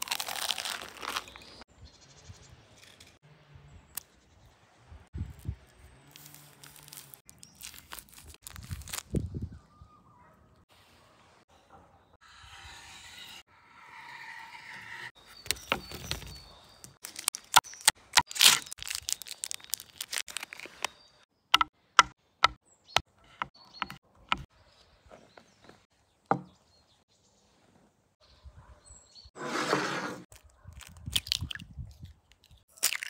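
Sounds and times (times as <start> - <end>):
plastic wrappers crinkling: 0.0 - 1.6, 6.1 - 9.2, 17.0 - 21.0
sharp clicks and taps: 21.6 - 24.5.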